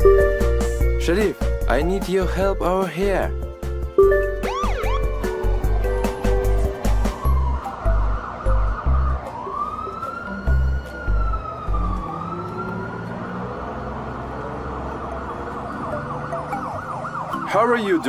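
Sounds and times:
deep music beat: 0:00.0 - 0:01.7, 0:03.7 - 0:09.2
police siren wailing: 0:04.0 - 0:18.0.

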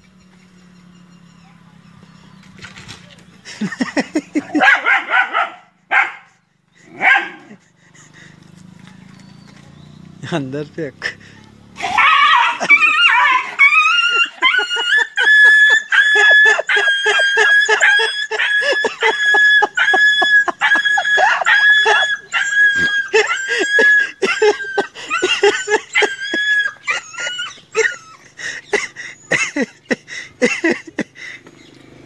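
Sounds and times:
dog whining: 0:11.8 - 0:28.3.

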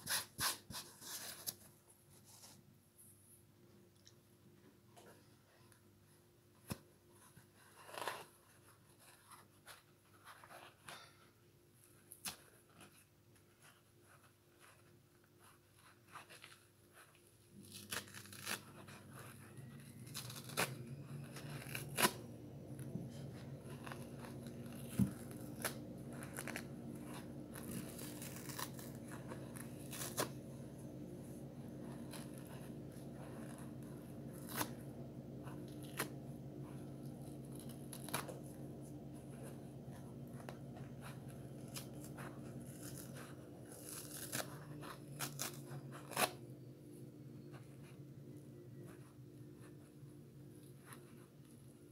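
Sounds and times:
fingers tearing foam sponge: 0:06.6 - 0:11.1, 0:14.6 - 0:46.4
steady low hum: 0:17.6 - 0:51.9.

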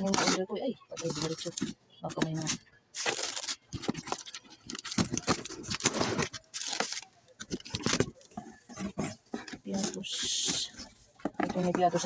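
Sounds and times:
plastic bags crinkling: 0:00.0 - 0:12.0
packing tape tearing: 0:03.0 - 0:08.2.

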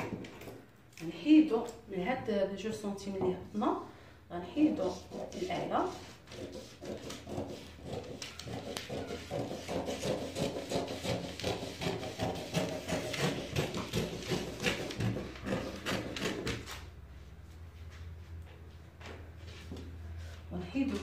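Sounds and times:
scissors snipping paper: 0:06.3 - 0:16.8.

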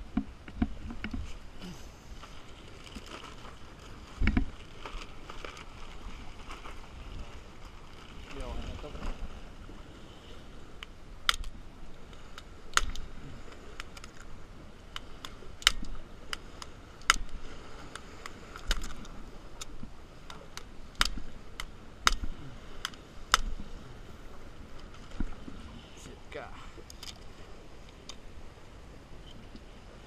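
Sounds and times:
fishing gear clicking: 0:11.2 - 0:14.3, 0:14.9 - 0:23.7, 0:26.8 - 0:28.2.

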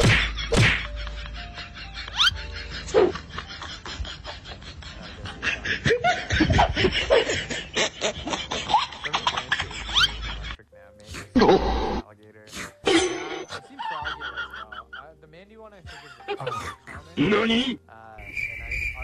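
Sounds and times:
person laughing: 0:00.0 - 0:10.6, 0:13.6 - 0:15.0, 0:15.9 - 0:17.0.

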